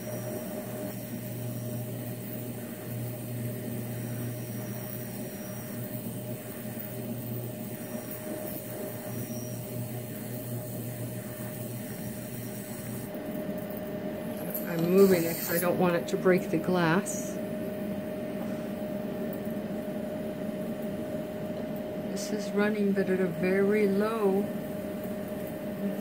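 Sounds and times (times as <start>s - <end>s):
steady electrical hum: 0.0s - 26.0s.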